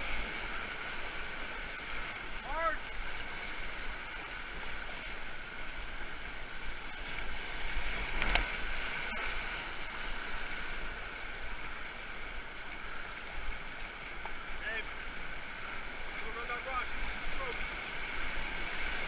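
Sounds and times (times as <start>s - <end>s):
rapids rushing: 0.0s - 19.0s
water splashing over canoe bow: 7.0s - 10.4s.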